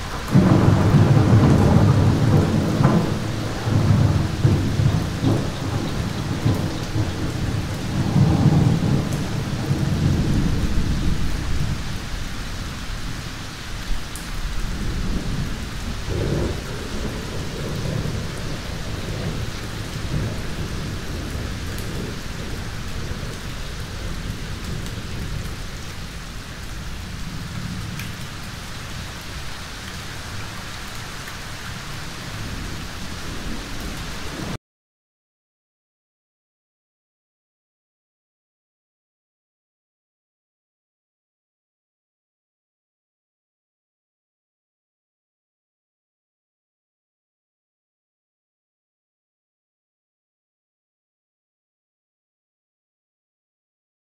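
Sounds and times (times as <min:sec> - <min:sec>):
rolling thunder: 0:00.0 - 0:29.5
steady rain: 0:00.0 - 0:34.6.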